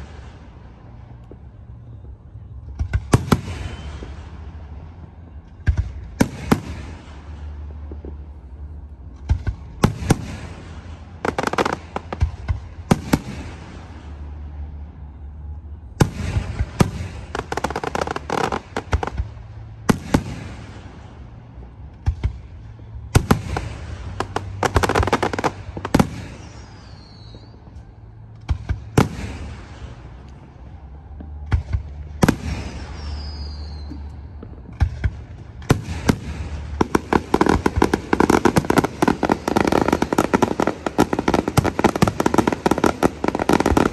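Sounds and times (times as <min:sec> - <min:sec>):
fireworks bangs: 0:00.0 - 0:43.9
fireworks crackle: 0:00.0 - 0:43.9
falling whistles: 0:26.2 - 0:28.0, 0:32.4 - 0:34.2.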